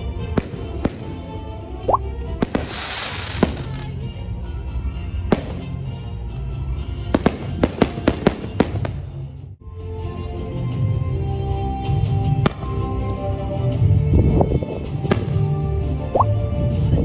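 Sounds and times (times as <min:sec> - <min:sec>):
background music: 0:00.0 - 0:17.0
fireworks bangs and cracks: 0:02.4 - 0:04.0, 0:07.1 - 0:09.0.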